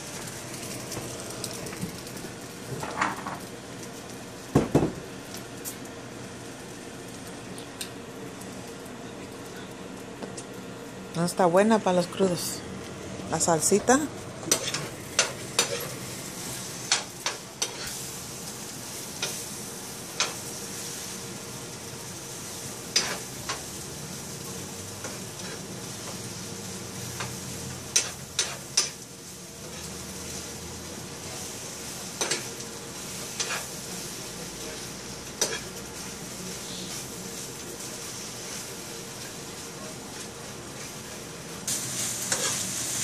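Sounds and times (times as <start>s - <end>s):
eggs sizzling in a skillet: 12.8s - 43.0s
spoon scraping a pan: 16.9s - 18.0s.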